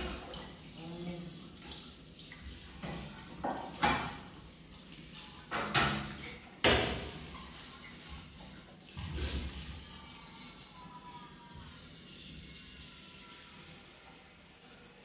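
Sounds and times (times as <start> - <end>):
tap water splashing: 0.0 - 0.7, 1.4 - 9.6
metal dishes clattering: 2.8 - 4.3, 5.4 - 7.5.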